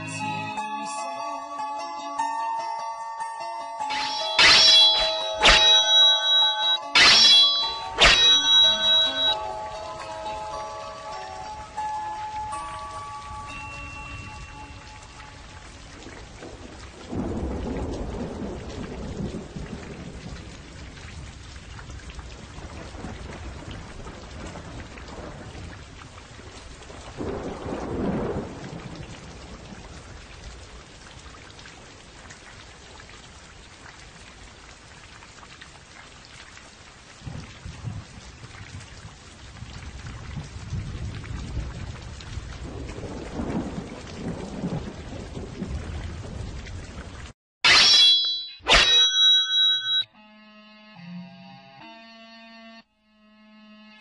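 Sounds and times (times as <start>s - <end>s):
steady rain: 3.8s - 47.4s
thunder rumbling: 14.1s - 34.2s, 37.1s - 47.3s.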